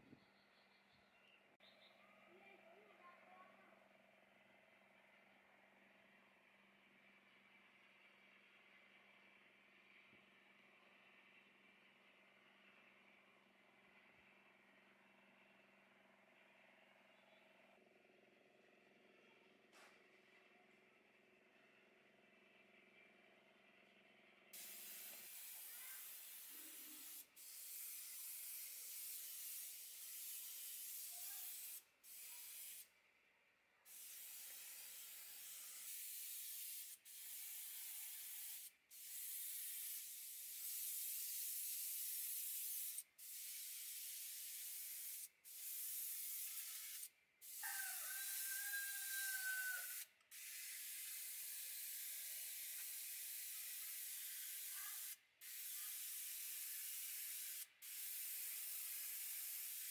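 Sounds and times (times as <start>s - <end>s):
spray paint hissing: 24.5s - 32.9s, 33.8s - 48.1s, 48.9s - 59.9s.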